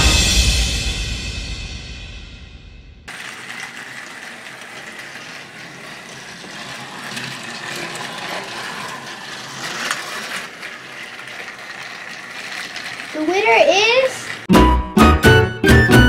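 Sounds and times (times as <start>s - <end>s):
wheels rattling on plastic track: 3.1s - 14.5s
toy train motor whine: 3.1s - 15.1s.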